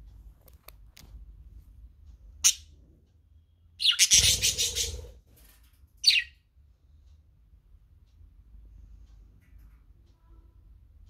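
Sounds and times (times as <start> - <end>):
budgerigar chirping: 3.8 - 5.1, 6.0 - 6.3.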